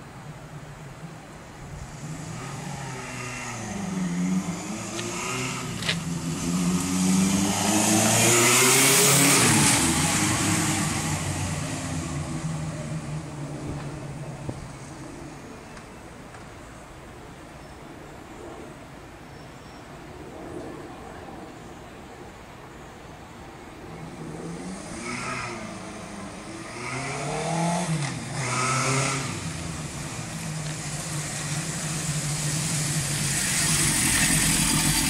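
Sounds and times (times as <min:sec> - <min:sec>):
motorcycle passing by: 0:01.8 - 0:15.4, 0:24.2 - 0:35.0.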